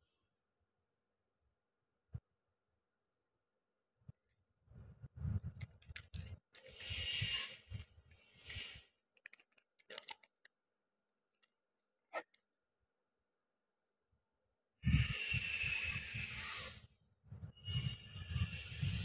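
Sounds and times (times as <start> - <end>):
plastic packaging crinkling: 5.6 - 6.8, 8.5 - 10.6.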